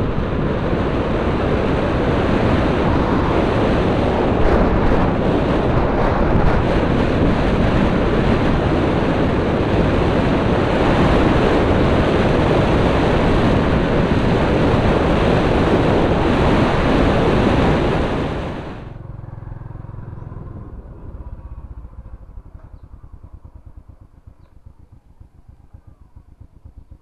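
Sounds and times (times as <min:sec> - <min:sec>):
motorbike engine: 0:00.0 - 0:27.0
wind noise on microphone: 0:00.0 - 0:27.0
faint low regular pulses: 0:18.6 - 0:27.0.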